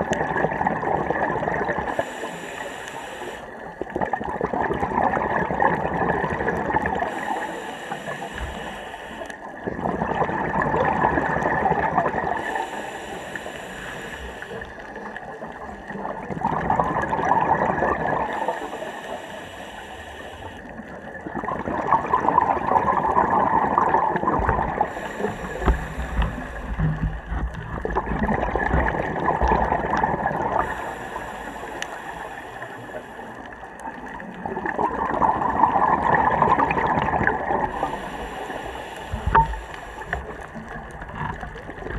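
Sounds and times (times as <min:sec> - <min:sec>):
gurgling exhaled bubbles: 0:00.0 - 0:41.9
regulator inhale hiss: 0:01.8 - 0:03.7, 0:06.8 - 0:09.5, 0:12.2 - 0:15.0, 0:18.2 - 0:20.8, 0:24.8 - 0:27.3, 0:30.5 - 0:33.8, 0:37.5 - 0:40.7.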